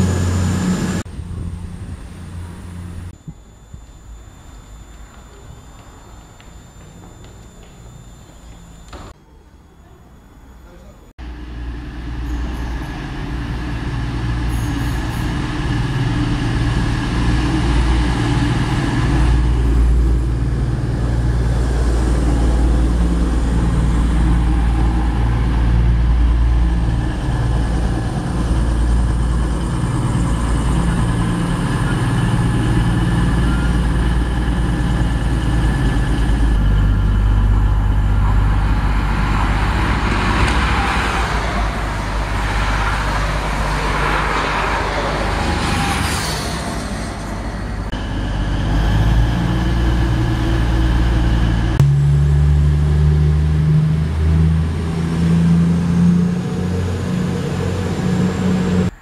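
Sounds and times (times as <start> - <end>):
locomotive diesel engine passing: 0.0 - 3.2, 11.2 - 59.0
diesel train engines droning: 0.0 - 59.0.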